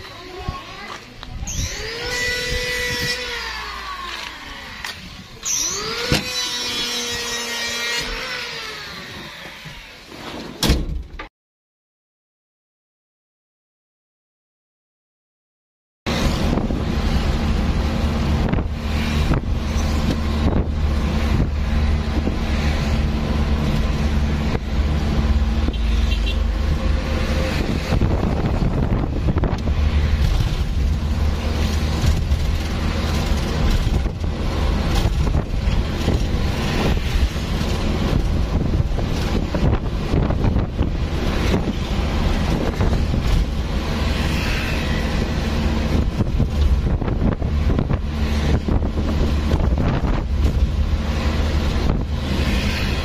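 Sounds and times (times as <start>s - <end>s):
wind buffeting microphone: 0.4s - 3.4s, 26.6s - 44.1s, 45.0s - 52.4s
engine running low hum: 16.1s - 53.0s.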